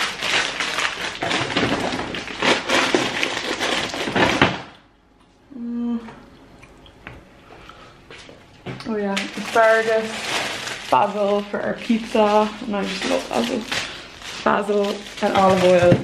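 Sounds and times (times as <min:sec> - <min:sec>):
plastic bags rustling: 0:00.0 - 0:04.7, 0:08.9 - 0:16.0
person humming: 0:05.5 - 0:06.3.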